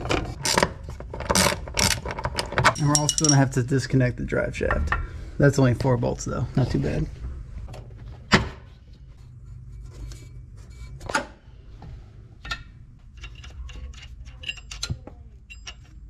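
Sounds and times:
steady low hum: 0.0 - 16.0
small metallic clicks and clinks: 2.7 - 3.4, 13.1 - 16.0.

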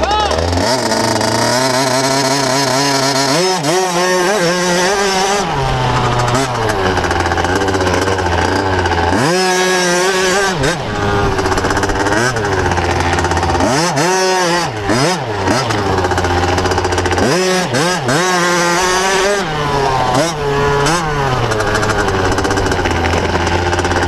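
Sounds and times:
motocross bike engine revving: 0.0 - 24.0.

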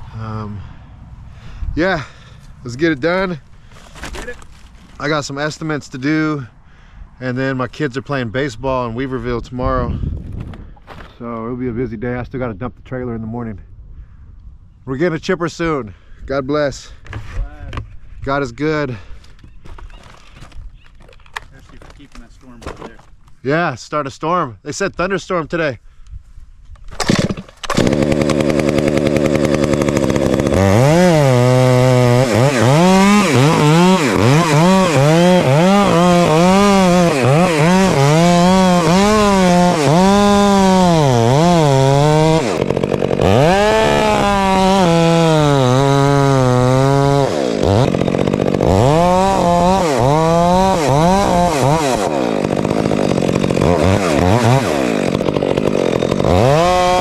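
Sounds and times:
chainsaw idling and cutting wood: 2.0 - 6.4, 21.3 - 22.8, 27.0 - 57.0.

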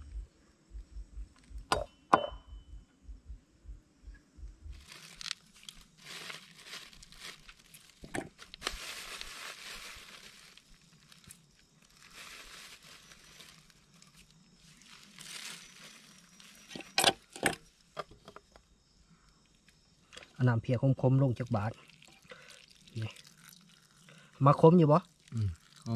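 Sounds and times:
crinkling and rustling: 4.7 - 18.6.

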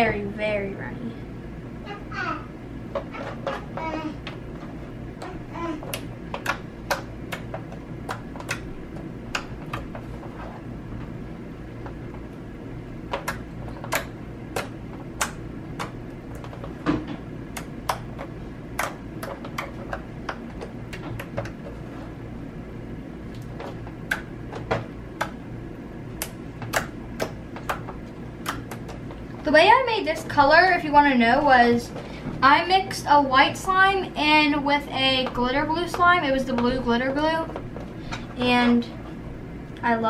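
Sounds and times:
steady low hum: 0.0 - 40.0.

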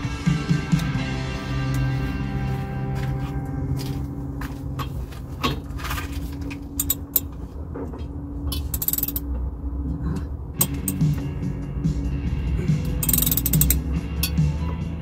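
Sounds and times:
socket ratchet clicking: 8.7 - 9.3, 12.9 - 14.4.

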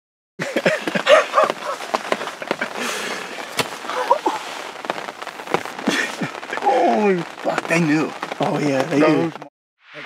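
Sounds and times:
rain patter: 0.4 - 9.5
turkeys calling: 0.7 - 4.6.

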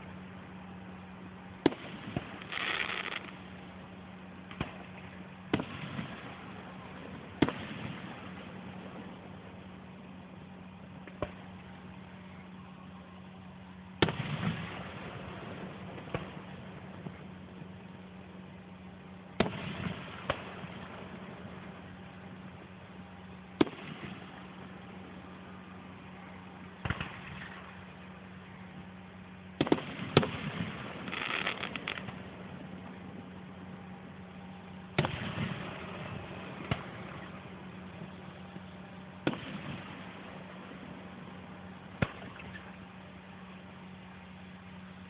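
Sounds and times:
steady low hum: 0.0 - 45.0
distant fireworks booms: 1.6 - 3.4, 4.4 - 9.6, 14.0 - 17.9, 19.4 - 22.8, 23.5 - 25.2, 26.8 - 28.0, 29.6 - 33.0, 34.9 - 41.3, 41.9 - 42.8.

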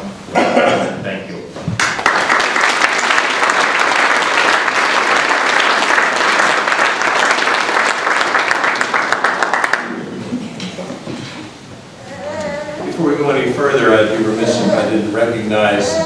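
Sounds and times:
audience applauding: 1.8 - 10.3.

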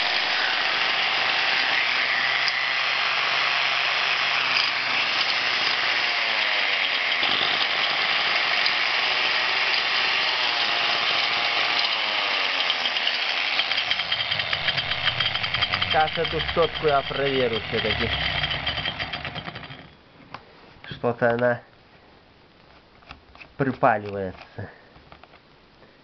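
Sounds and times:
angle grinder motor running: 0.0 - 19.9.

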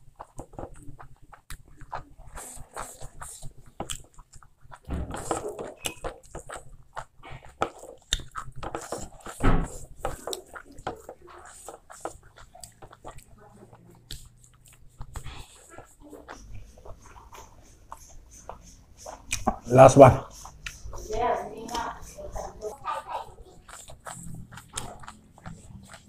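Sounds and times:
fingers mixing food on a plate: 0.0 - 26.0
wet chewing and lip smacks: 0.0 - 26.0
thump: 4.9 - 5.6, 9.4 - 9.8.

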